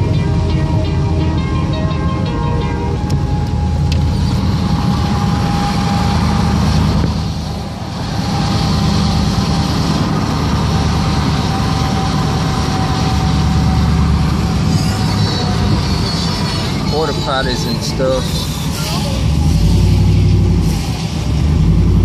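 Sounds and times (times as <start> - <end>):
car driving on wet road: 3.1 - 17.2
hiss from wet pavement: 20.5 - 21.6.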